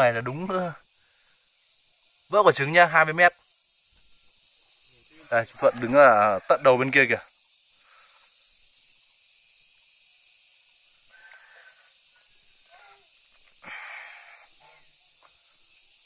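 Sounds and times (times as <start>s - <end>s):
high insect-like tone: 0.0s - 16.0s.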